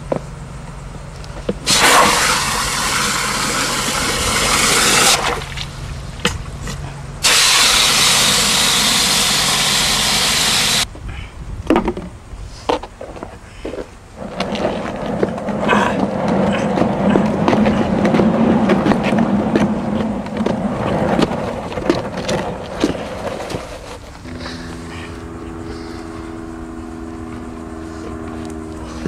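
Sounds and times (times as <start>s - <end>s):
trash can dragged across asphalt: 14.2s - 26.0s
low drone of held tones: 24.2s - 29.0s.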